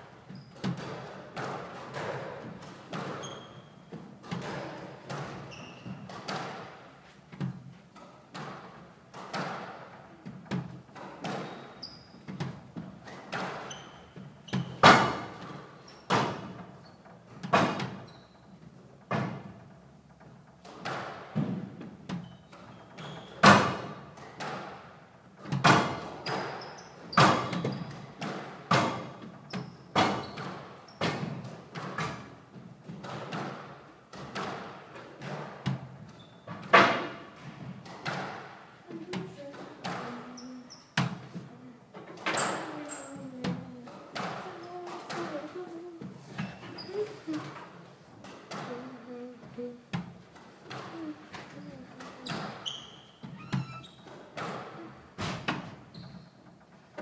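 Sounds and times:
ball hitting court walls: 0.6s - 6.8s, 7.4s - 16.7s, 20.6s - 24.8s, 25.5s - 40.2s
racquet striking squash ball: 0.6s - 16.5s, 25.5s - 35.9s, 36.6s - 40.4s.

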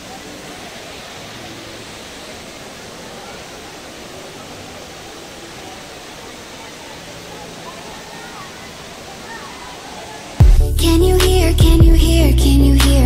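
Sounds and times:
faint voices of people: 0.0s - 10.4s
indoor waterfall rushing: 0.0s - 10.4s.

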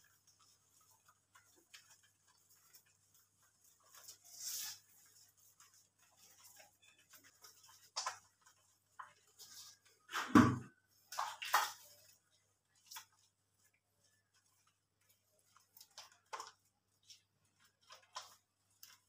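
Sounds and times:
wet rubbing and splashing: 0.0s - 19.0s
thump: 10.2s - 10.7s.

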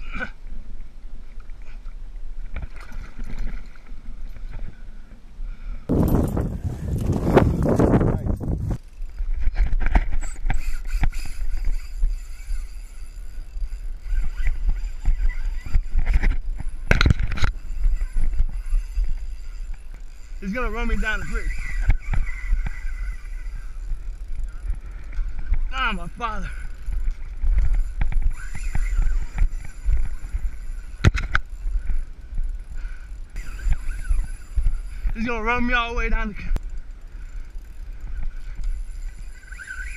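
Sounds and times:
wind buffeting microphone: 5.9s - 35.4s.

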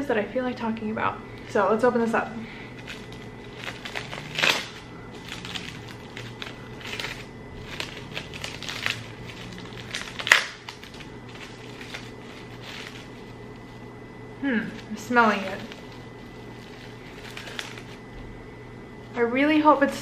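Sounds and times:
plastic wrap crinkling: 2.7s - 13.9s, 14.6s - 18.1s.

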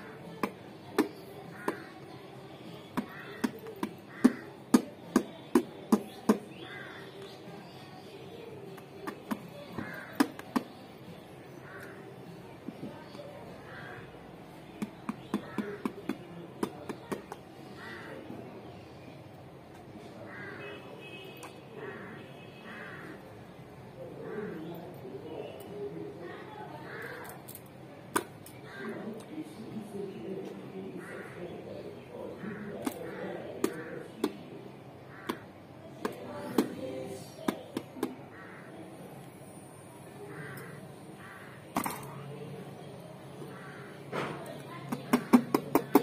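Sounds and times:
crow cawing: 1.5s - 1.9s, 3.0s - 4.6s, 6.6s - 7.1s, 9.8s - 10.4s, 11.6s - 12.1s, 13.6s - 14.1s, 17.6s - 18.2s, 20.3s - 20.8s, 21.8s - 23.2s, 26.8s - 27.4s, 35.0s - 35.5s, 38.0s - 38.8s, 40.2s - 41.7s, 43.4s - 44.0s.

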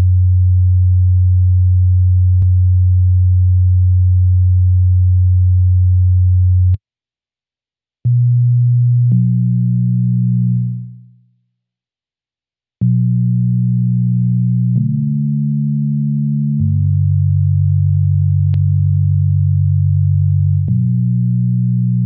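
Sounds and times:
low synth notes: 8.1s - 11.1s, 12.8s - 22.0s.

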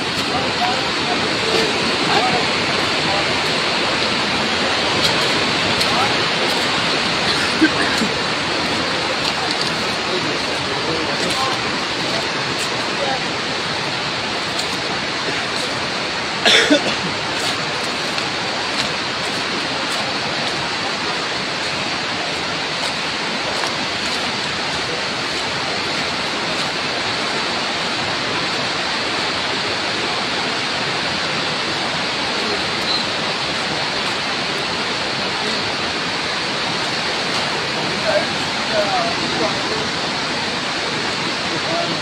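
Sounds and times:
steady rushing hiss: 0.0s - 42.0s.

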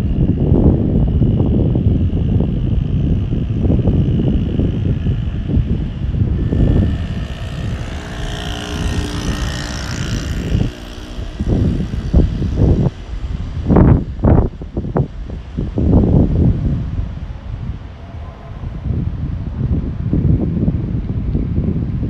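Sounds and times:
wind buffeting microphone: 0.0s - 22.0s
vehicle passing: 4.7s - 15.0s.

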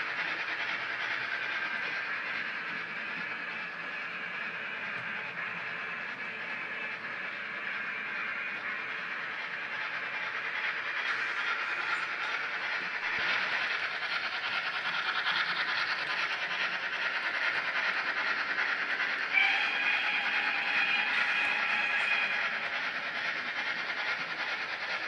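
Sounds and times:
model locomotive steam noise: 0.0s - 25.0s
steam whistle blowing: 19.3s - 22.3s.

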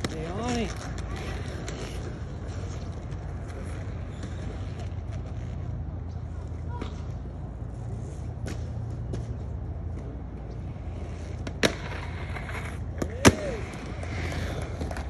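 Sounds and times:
skateboard clacking on concrete: 0.0s - 5.8s, 10.0s - 15.0s
skateboard landing: 11.4s - 15.0s.

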